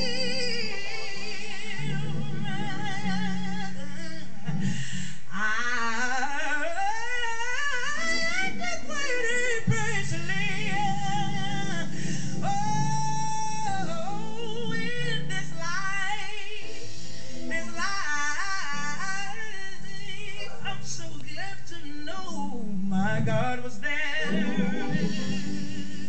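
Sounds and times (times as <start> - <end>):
woman singing gospel: 0.0 - 4.7, 5.3 - 26.0
organ: 0.0 - 5.6, 7.9 - 26.0
bass guitar: 1.8 - 5.0, 9.6 - 15.6, 24.2 - 26.0.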